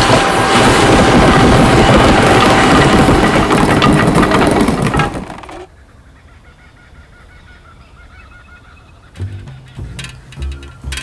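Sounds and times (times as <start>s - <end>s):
loud rushing roar: 0.0s - 4.8s.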